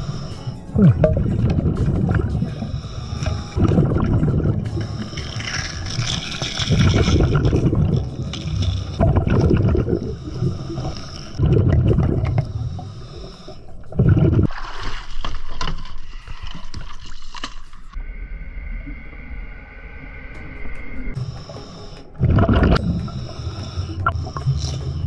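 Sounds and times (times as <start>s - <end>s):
hissing regulator inhalations: 0.0s - 1.0s, 1.9s - 11.4s, 12.2s - 14.0s, 21.1s - 25.0s
bubbly underwater exhalations: 0.8s - 2.6s, 3.6s - 4.7s, 5.8s - 12.5s, 13.9s - 14.5s, 22.2s - 22.9s.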